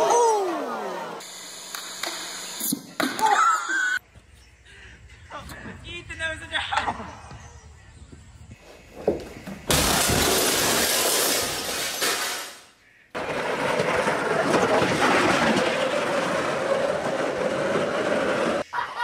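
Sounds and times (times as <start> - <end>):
loud crash: 9.7 - 12.6
bobsled rolling on rails: 13.2 - 18.7.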